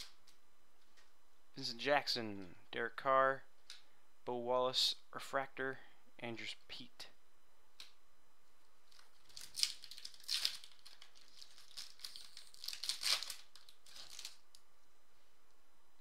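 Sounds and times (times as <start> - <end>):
foil wrapper tearing and crinkling: 8.9 - 14.5.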